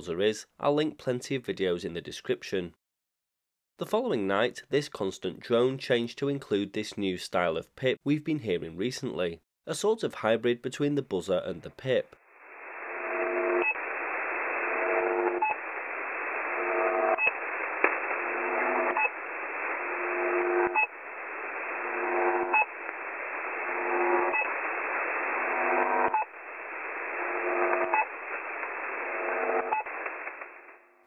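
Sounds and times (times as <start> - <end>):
short radio pip: 12.1 - 31.0
droning radio buzz: 12.4 - 30.9.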